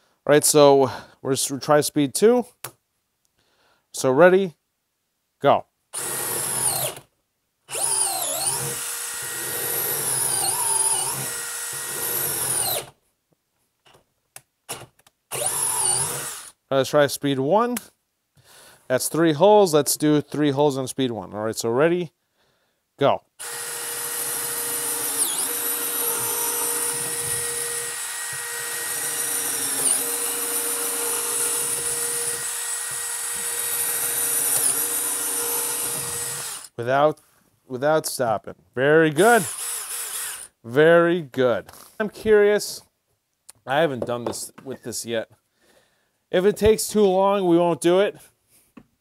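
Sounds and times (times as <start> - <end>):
power drill whining: 6.0 - 7.1, 7.7 - 13.0, 14.7 - 16.6, 23.4 - 36.8, 39.2 - 40.6.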